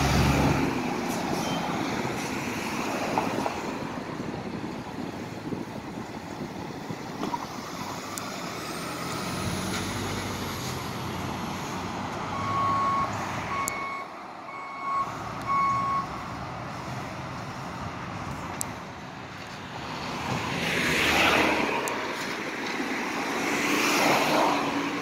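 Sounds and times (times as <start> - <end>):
street traffic: 0.0 - 25.0
vehicle backup alarm beeping: 12.3 - 16.2.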